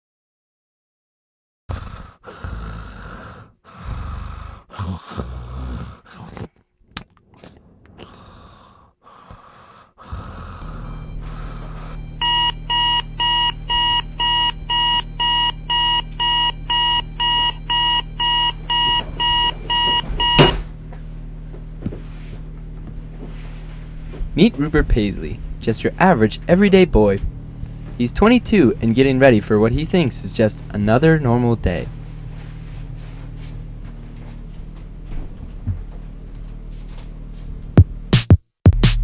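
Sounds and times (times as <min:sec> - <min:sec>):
low hum: 0:10.2 - 0:38.1
alarm clock beeping: 0:10.6 - 0:20.7
loud thump: 0:20.2 - 0:20.7.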